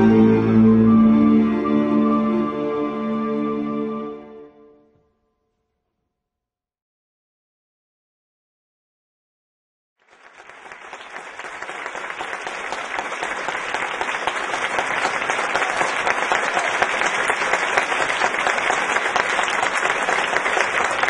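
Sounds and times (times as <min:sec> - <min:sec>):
audience applauding: 0:10.0 - 0:21.0.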